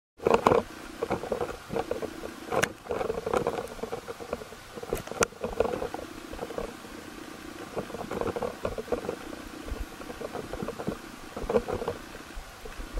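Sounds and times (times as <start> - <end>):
sharp underwater clicks: 0.2 - 6.8
underwater crackling and water movement: 0.2 - 12.9.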